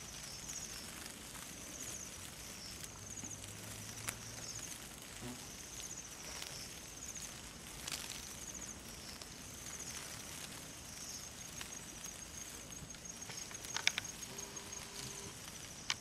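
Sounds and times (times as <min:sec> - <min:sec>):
insects trilling: 0:00.0 - 0:16.0
faint sharp clicks: 0:12.9 - 0:16.0.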